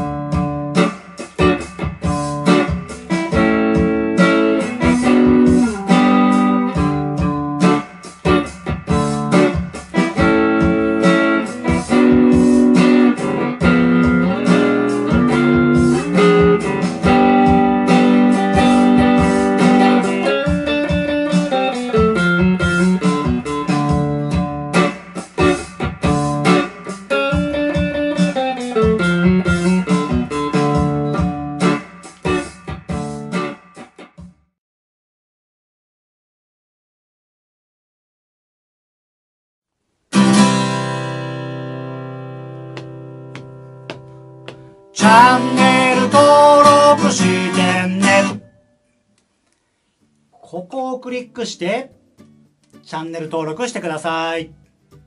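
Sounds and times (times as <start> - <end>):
electric guitar chords and riffs: 0.0 - 34.3, 40.1 - 48.7.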